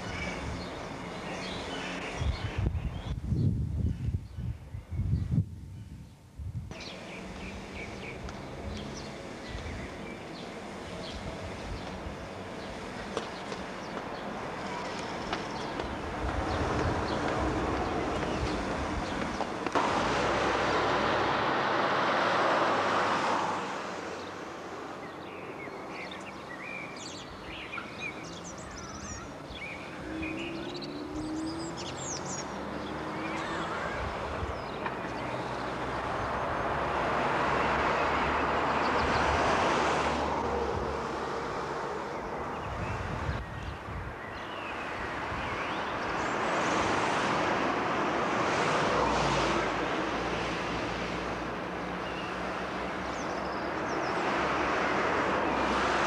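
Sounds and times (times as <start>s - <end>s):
vehicles passing: 0.0s - 3.5s, 6.7s - 56.0s
small birds chirping: 0.0s - 19.5s, 25.0s - 36.0s.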